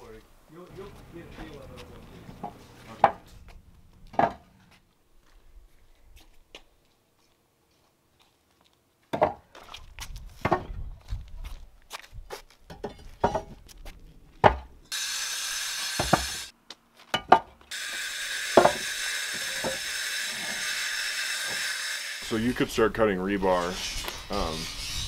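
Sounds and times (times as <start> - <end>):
concrete blocks knocking and scraping: 1.3 - 4.8, 12.7 - 14.8, 17.0 - 17.7.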